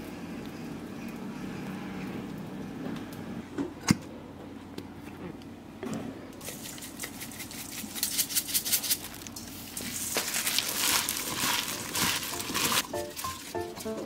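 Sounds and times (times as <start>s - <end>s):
herbs rustling in a bowl: 6.4s - 14.0s
plastic glove crinkling: 6.4s - 14.0s.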